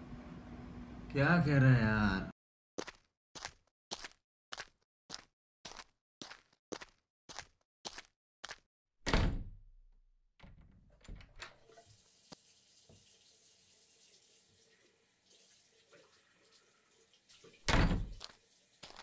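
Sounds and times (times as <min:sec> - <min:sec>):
tap water running into basin: 0:11.6 - 0:19.0.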